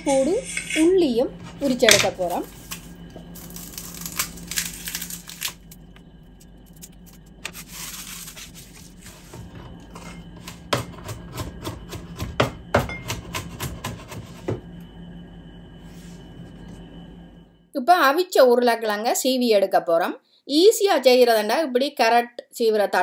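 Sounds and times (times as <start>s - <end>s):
garlic skins rustling: 1.6s - 5.6s.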